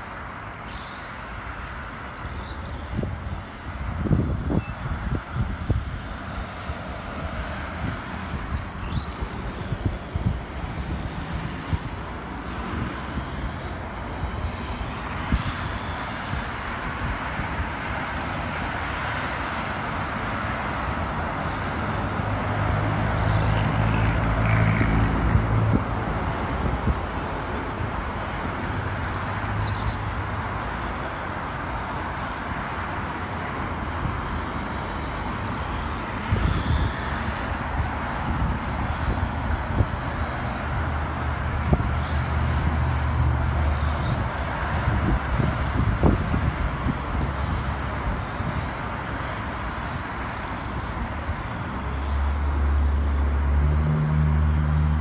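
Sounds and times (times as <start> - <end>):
small electric motor whining: 0.6 - 19.0, 33.8 - 52.8.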